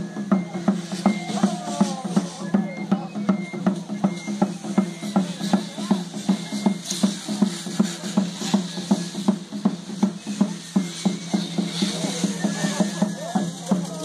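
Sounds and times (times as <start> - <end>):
steady drumbeat: 0.0 - 14.0.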